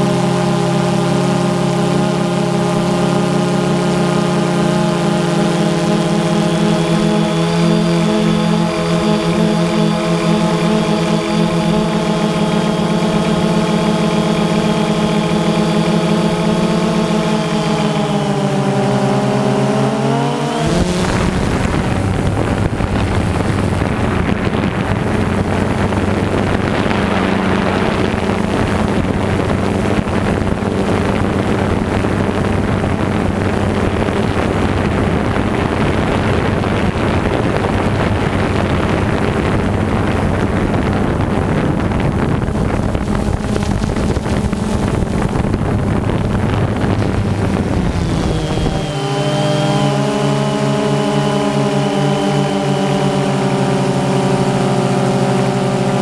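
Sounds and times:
low hum: 0:00.0 - 0:56.0
model aircraft motor buzzing: 0:00.0 - 0:56.0
wind noise on microphone: 0:00.0 - 0:56.0.

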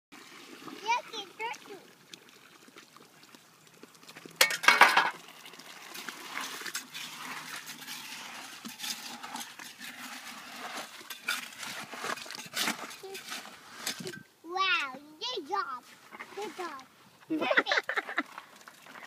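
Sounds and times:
bucket contents pouring rush: 0:00.1 - 0:14.3, 0:15.5 - 0:19.0
clinks and scrapes: 0:04.4 - 0:05.2, 0:06.3 - 0:14.3, 0:15.8 - 0:16.9, 0:17.7 - 0:19.0.

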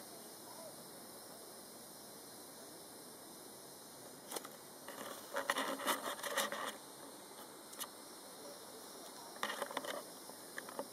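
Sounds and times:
steady hiss: 0:00.0 - 0:10.9
scratchy crackly rustling: 0:04.3 - 0:07.9, 0:09.3 - 0:10.9.

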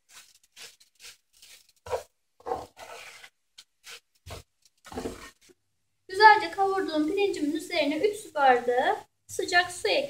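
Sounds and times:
plastic spatula scraping frying pan: 0:00.0 - 0:05.5.

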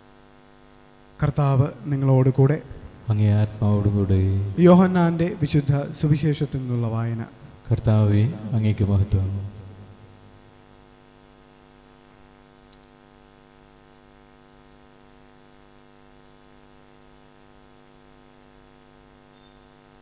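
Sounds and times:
electrical mains hum: 0:00.0 - 0:20.0
metallic chain clink: 0:12.5 - 0:13.4.

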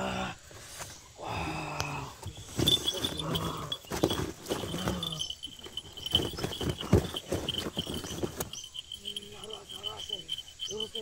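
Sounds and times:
insect trill: 0:00.0 - 0:11.0
rustling: 0:02.4 - 0:11.0
thuds and knocks: 0:02.6 - 0:08.6.

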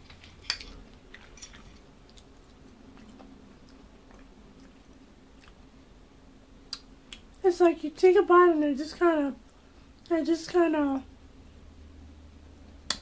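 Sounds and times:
low steady hum: 0:00.0 - 0:13.0
chewing fried food: 0:00.1 - 0:05.8
wet mouth clicks: 0:06.7 - 0:07.3.

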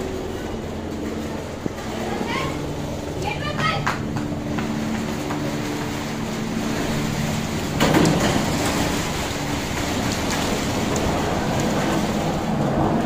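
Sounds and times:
wind: 0:00.0 - 0:13.0
rain: 0:07.8 - 0:13.0.

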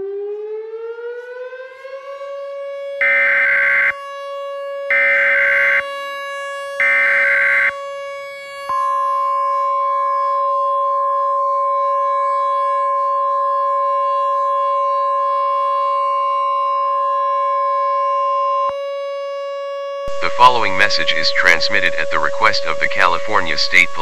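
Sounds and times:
lower steady tone: 0:20.1 - 0:24.0.

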